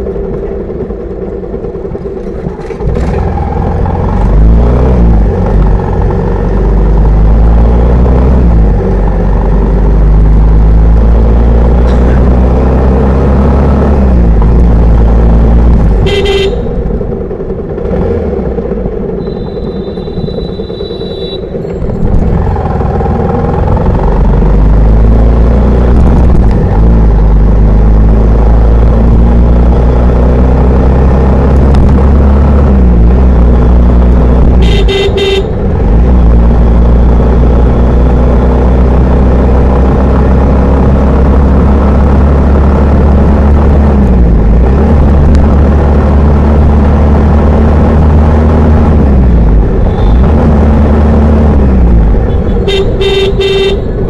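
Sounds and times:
motorcycle engine revving: 0.0s - 54.0s
vehicle horn honking: 16.0s - 16.8s, 19.2s - 21.6s, 34.6s - 35.6s, 52.3s - 54.0s.

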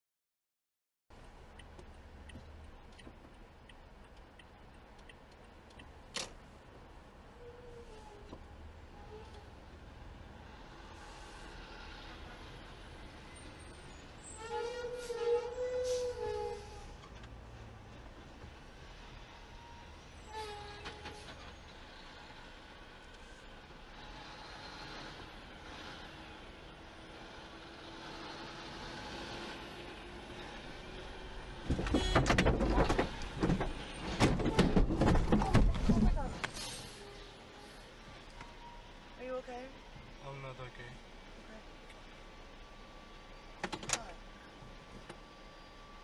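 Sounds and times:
city traffic noise: 1.1s - 46.0s
light ticking: 1.2s - 6.2s
car cabin road rumble: 31.5s - 36.6s.

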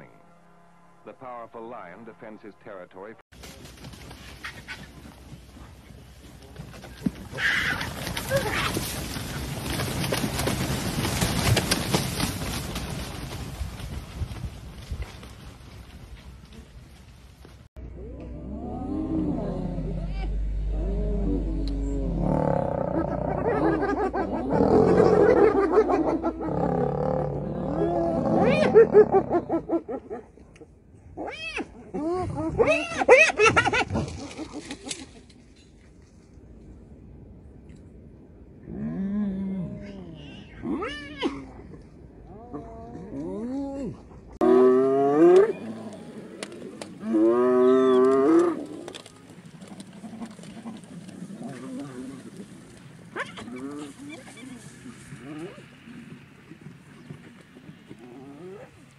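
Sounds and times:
deep growling: 17.8s - 29.6s, 38.6s - 54.2s
hyenas whooping and giggling: 22.7s - 26.8s, 27.6s - 30.3s, 31.6s - 35.2s.

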